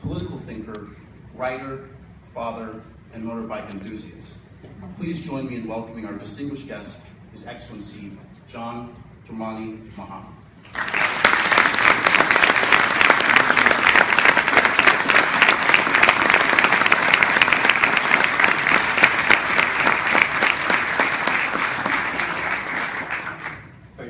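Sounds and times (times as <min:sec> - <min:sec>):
audience applauding: 0:10.7 - 0:23.8.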